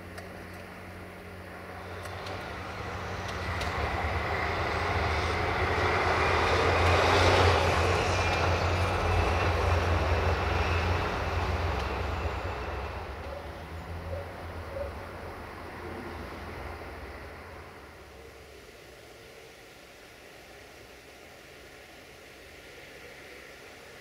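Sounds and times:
concrete mixer truck driving past: 0:01.5 - 0:18.2.

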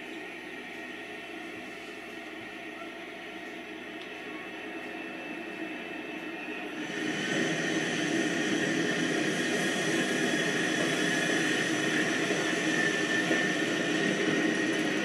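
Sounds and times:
model train motor whine: 0:03.5 - 0:15.0
model train wheels rolling: 0:06.1 - 0:15.0.

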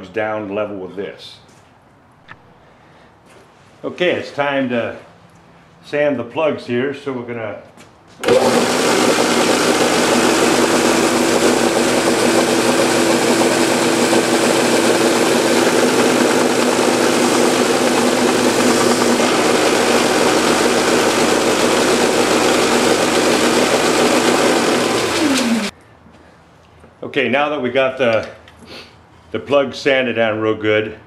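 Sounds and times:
belt sander sanding wood: 0:08.2 - 0:25.7
motor hum: 0:08.2 - 0:25.7.

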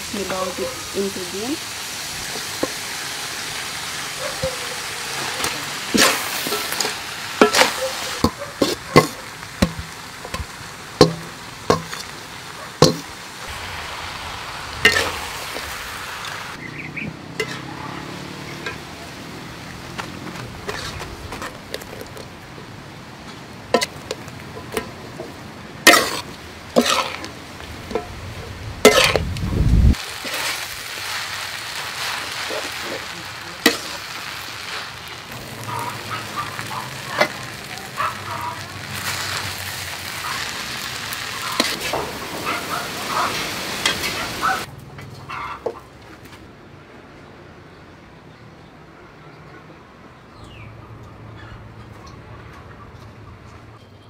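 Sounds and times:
food sizzling in a wok: 0:00.0 - 0:44.7
metal utensil scraping a pan: 0:04.4 - 0:12.2, 0:12.8 - 0:13.1, 0:14.8 - 0:15.2, 0:17.4 - 0:17.8, 0:18.4 - 0:18.9, 0:20.6 - 0:22.3, 0:23.7 - 0:28.2, 0:28.8 - 0:29.3, 0:30.2 - 0:30.7, 0:32.0 - 0:34.9, 0:35.6 - 0:38.2, 0:41.4 - 0:44.6.

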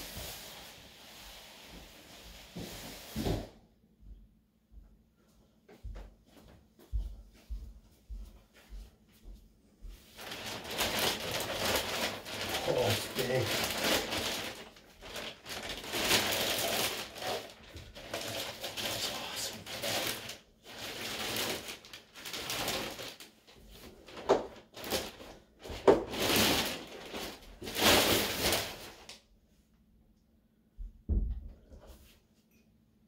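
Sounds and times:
plastic bag crinkling: 0:10.2 - 0:29.1.

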